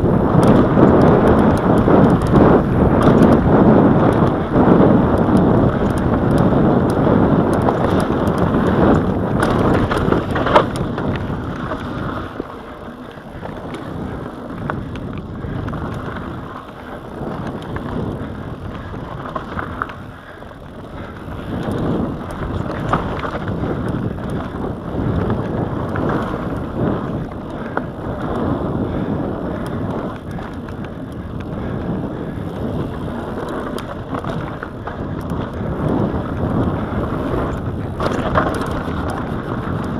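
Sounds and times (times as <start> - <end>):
bike rattles and clicks: 0.0 - 39.9
bike tyres crunching over dirt: 0.0 - 39.9
wind buffeting microphone: 0.0 - 39.9.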